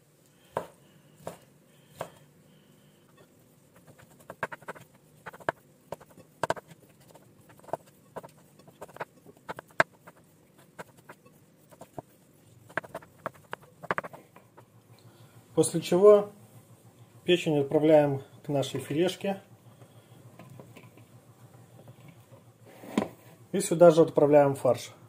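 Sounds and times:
knife tapping a wooden board: 0:04.3 - 0:06.7.

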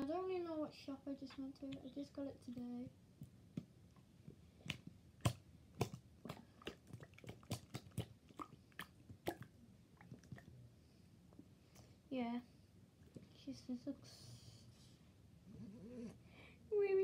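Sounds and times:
slime squishing wet pops: 0:04.6 - 0:10.5.

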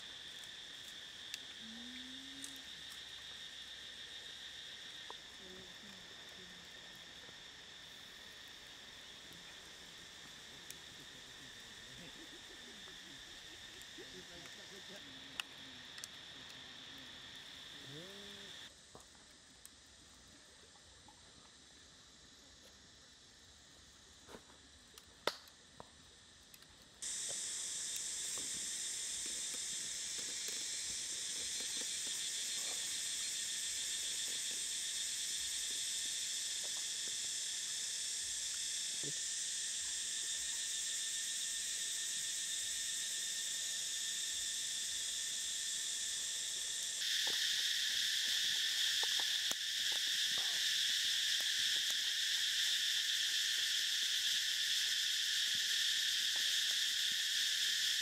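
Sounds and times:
insects chorus: 0:00.0 - 0:58.0.

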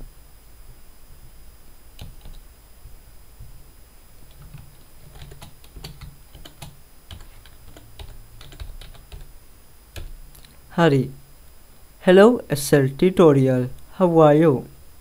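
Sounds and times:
computer keyboard typing: 0:02.0 - 0:02.4, 0:04.2 - 0:09.3, 0:09.9 - 0:10.5.

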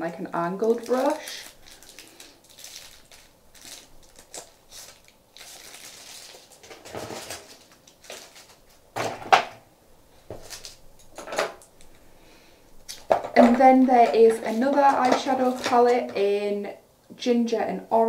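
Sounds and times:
packaging rustling: 0:00.6 - 0:09.6, 0:10.2 - 0:11.7, 0:12.9 - 0:16.2
cases clacking together: 0:12.9 - 0:16.2.

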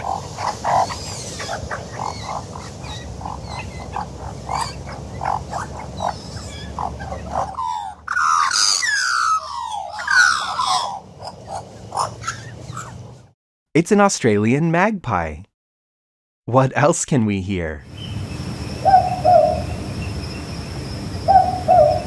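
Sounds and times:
magpie calling and warbling: 0:00.0 - 0:13.1, 0:18.8 - 0:19.7, 0:21.3 - 0:22.0
low background rumble: 0:00.0 - 0:13.3.

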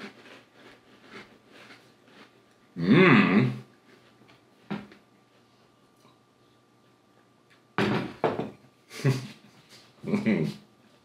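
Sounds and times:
glass knocking on a table: 0:07.8 - 0:08.6.

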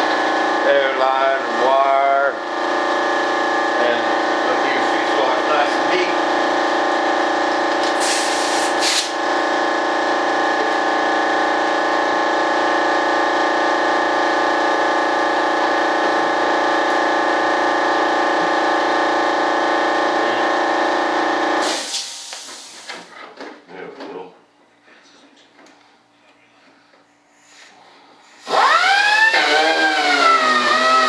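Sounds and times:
electric motor whine: 0:28.4 - 0:31.0.

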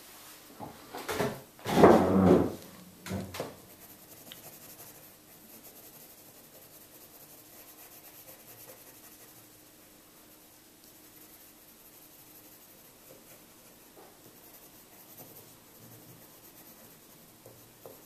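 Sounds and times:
hand rubbing on paper: 0:03.6 - 0:18.0
pencil scratching on paper: 0:03.6 - 0:18.0.

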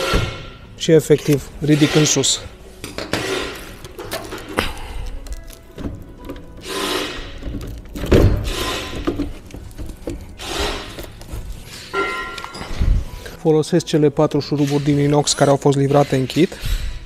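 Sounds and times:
faint background music: 0:00.0 - 0:17.0
metal rod scraping metal tabs: 0:01.2 - 0:12.6.

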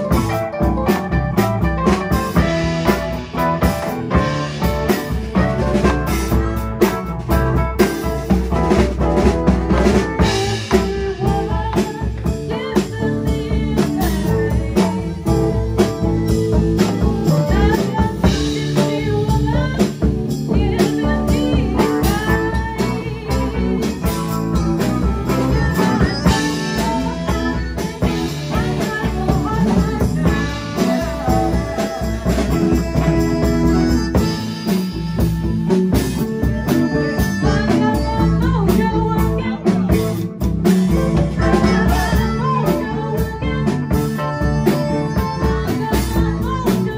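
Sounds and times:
live blues rock band: 0:00.0 - 0:46.9.

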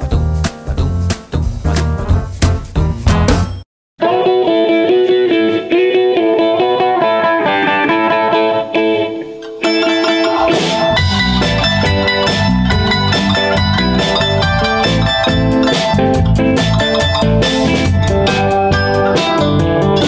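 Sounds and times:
drums and bass beat: 0:00.0 - 0:03.6, 0:09.7 - 0:20.0
plucked guitar tune: 0:00.0 - 0:20.0.

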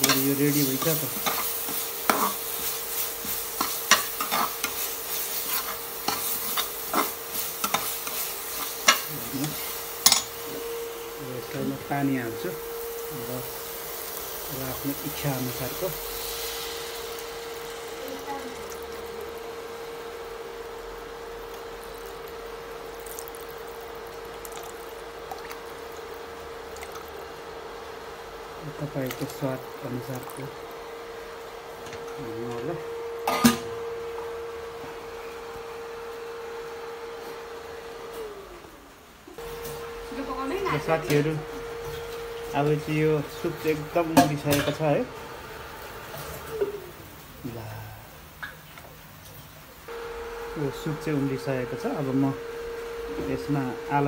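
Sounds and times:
metal spoon scraping a pan: 0:00.0 - 0:10.3
spice paste sizzling in pan: 0:00.0 - 0:32.5
faint steady hum: 0:00.0 - 0:45.6, 0:46.5 - 0:54.0
water pouring into pot: 0:13.5 - 0:27.5, 0:28.6 - 0:30.7.

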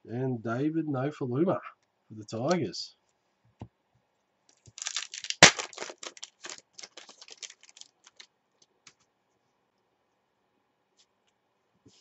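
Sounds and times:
wrapper crinkling: 0:04.6 - 0:08.3
wrapper being torn open: 0:04.7 - 0:08.3.

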